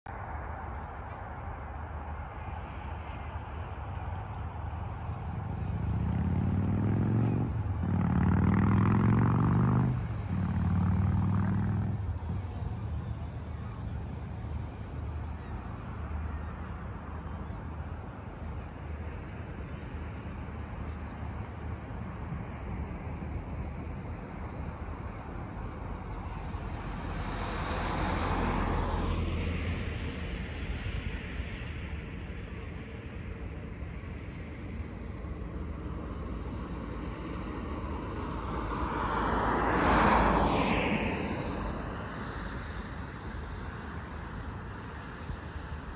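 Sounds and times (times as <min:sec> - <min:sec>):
car passing: 0:00.1 - 0:45.9
vehicle engine accelerating hard: 0:05.0 - 0:16.6.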